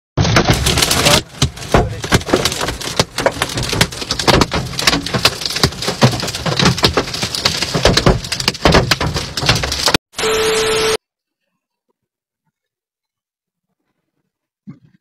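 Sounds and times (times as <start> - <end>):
hail clattering on car: 0.2 - 10.0.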